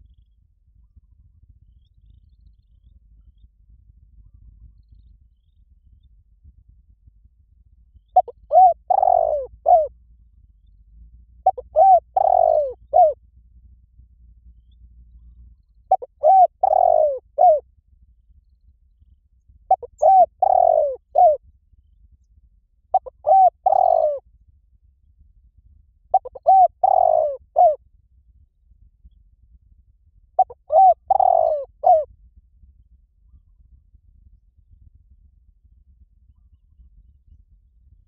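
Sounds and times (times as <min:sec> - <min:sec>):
dove cooing: 0:08.2 - 0:09.9, 0:11.4 - 0:13.2, 0:15.9 - 0:17.6, 0:19.7 - 0:21.4, 0:22.9 - 0:24.2, 0:26.1 - 0:27.8, 0:30.4 - 0:32.1.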